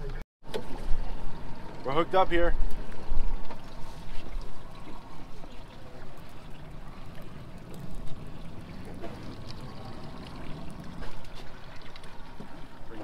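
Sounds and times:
low motor hum: 0.0 - 13.0
water splashing along hull: 0.4 - 13.0.

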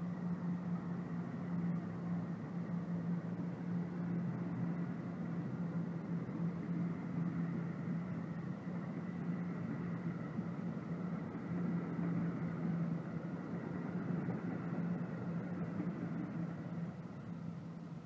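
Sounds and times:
train wheels rumbling on rail: 0.0 - 17.6.

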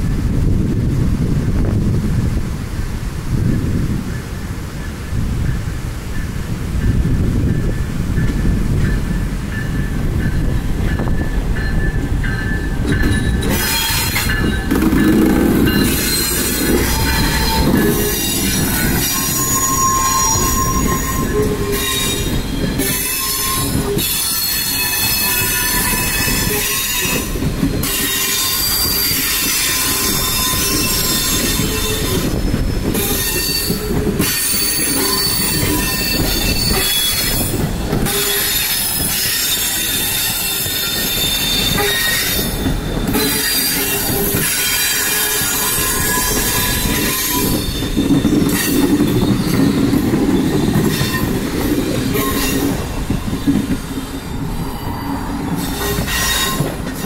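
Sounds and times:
train wheels squealing: 6.2 - 57.0
wheels clattering on track: 6.8 - 31.6.

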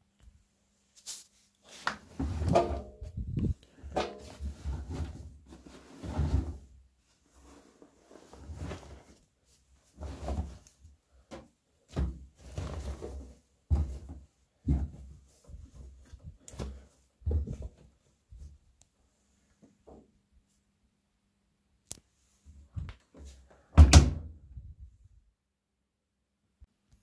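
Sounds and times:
fabric rustling and thumping: 11.2 - 18.5.

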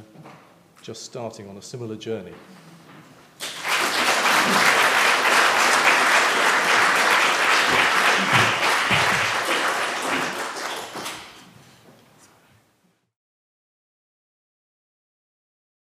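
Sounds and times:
audience applauding: 3.4 - 11.5.

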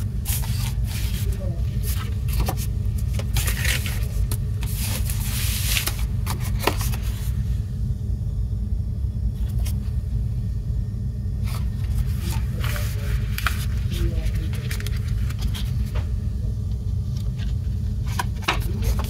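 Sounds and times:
steady low rumble: 0.0 - 19.0
paper rustling: 0.2 - 7.3, 11.4 - 16.0.

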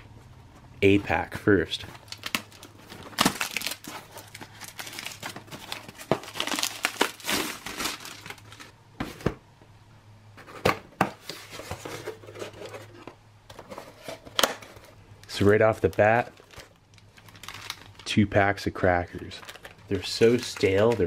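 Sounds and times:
plastic bag crinkling: 1.9 - 8.8, 15.3 - 18.1, 19.1 - 21.0.

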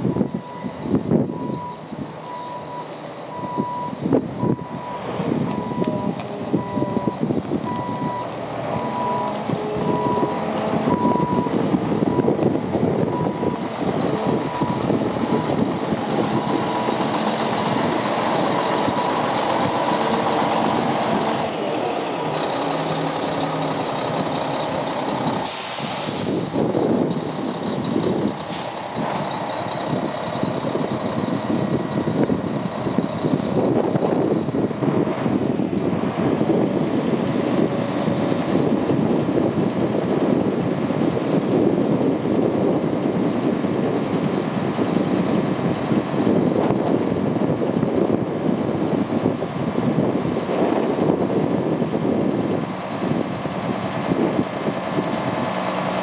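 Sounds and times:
diesel truck engine running: 0.0 - 56.0
air hissing: 25.4 - 26.7.

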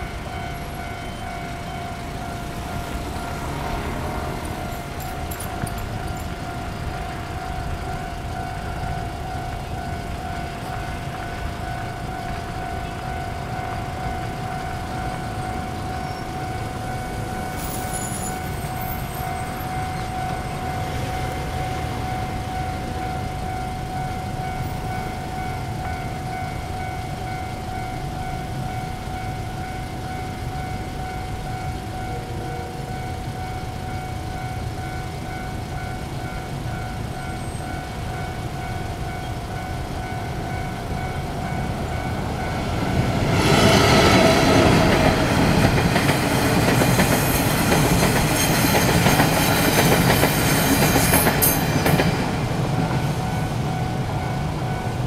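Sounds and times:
level-crossing warning bell: 0.0 - 55.0
train wheels clattering: 41.7 - 55.0.

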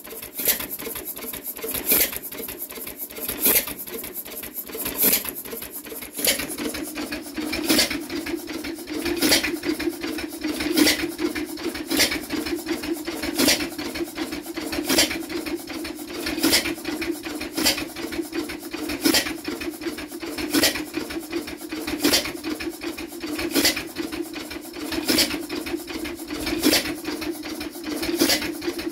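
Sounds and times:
hit-and-miss engine running: 0.0 - 16.8.

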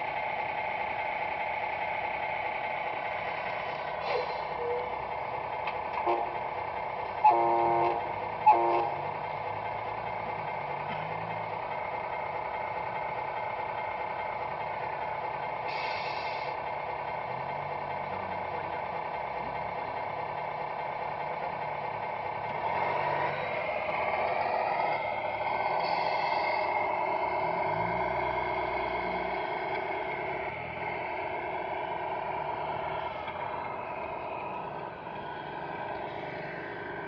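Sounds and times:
diesel engine idling: 0.0 - 37.0
truck horn blasts: 6.0 - 6.4, 7.2 - 9.0.

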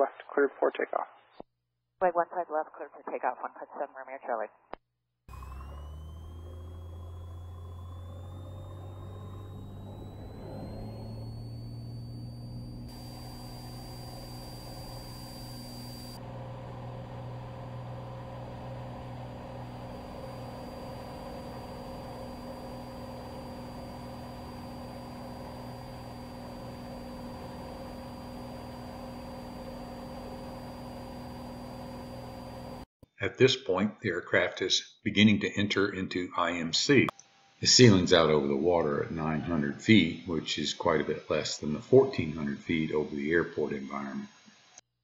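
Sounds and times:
high engine whine: 5.3 - 32.9
propeller airplane engine: 5.3 - 32.9.

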